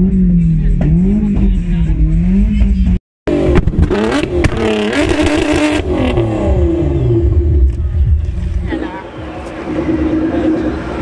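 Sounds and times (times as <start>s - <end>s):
car engine revving: 0.0s - 11.0s
exhaust crackles: 0.0s - 11.0s.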